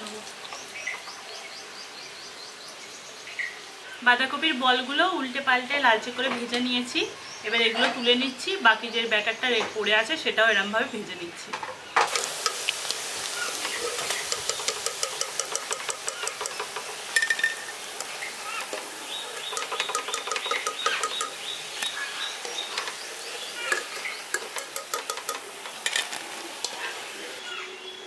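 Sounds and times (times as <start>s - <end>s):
birds chirping: 5.6s - 28.0s
deep-frying oil crackling: 12.0s - 27.4s.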